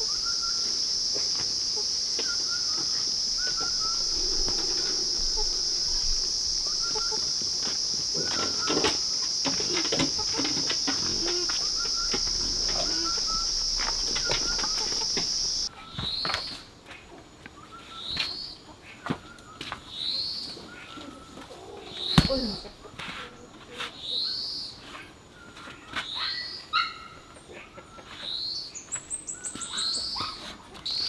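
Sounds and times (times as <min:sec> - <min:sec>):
rising whistled bird calls: 0:00.0 - 0:01.0, 0:02.2 - 0:09.2, 0:10.9 - 0:16.6, 0:17.6 - 0:18.6, 0:28.2 - 0:31.0
high insect drone: 0:00.0 - 0:16.3
footsteps: 0:00.6 - 0:15.7.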